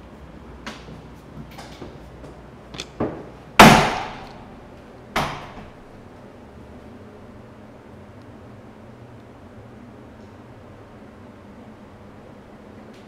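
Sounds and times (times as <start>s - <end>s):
sharp bangs: 3.6s - 4.5s.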